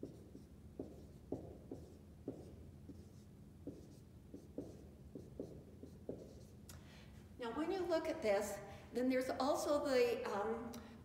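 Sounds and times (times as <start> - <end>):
marker writing on whiteboard: 0.0 - 6.6.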